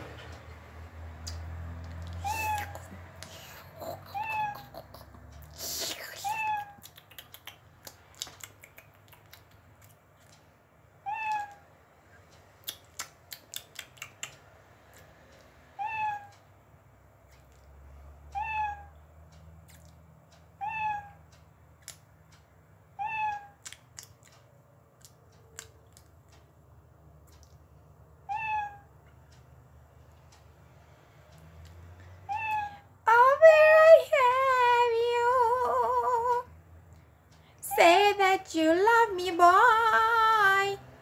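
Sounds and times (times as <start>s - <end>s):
kitten-like mews: 3.8s - 4.9s, 32.3s - 32.8s.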